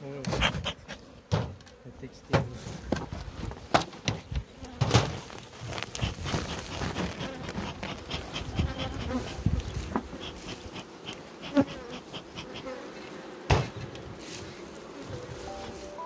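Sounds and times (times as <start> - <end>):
honeybees buzzing: 0.0 - 16.0
rustling: 4.6 - 13.2.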